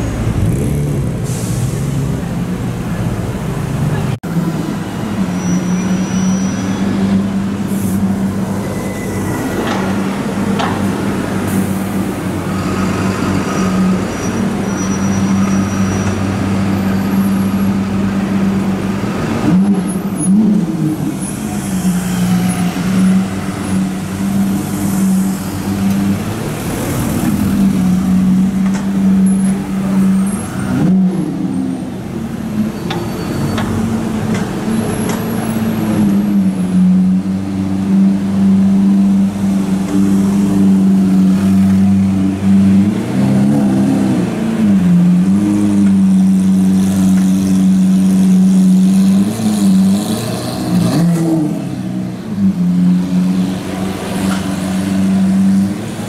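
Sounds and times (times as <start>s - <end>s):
car and bus engines idling: 0.0s - 43.2s.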